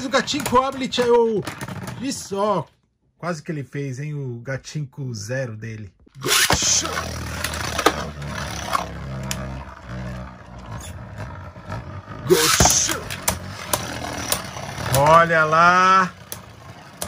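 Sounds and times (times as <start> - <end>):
spinning top launcher rip: 6.2 - 10.2, 12.3 - 15.3
spinning top whirring: 6.2 - 17.0.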